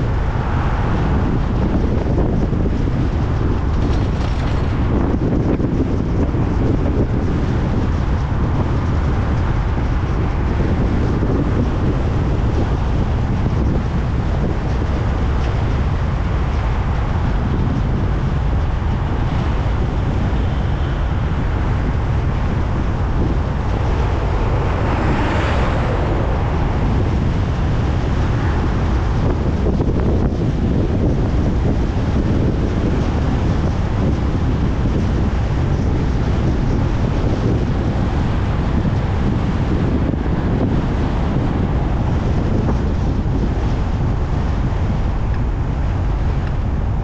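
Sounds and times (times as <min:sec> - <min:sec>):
car road noise rumble: 0:00.0 - 0:47.0
wind buffeting microphone: 0:00.0 - 0:47.0
whoosh: 0:22.2 - 0:28.4.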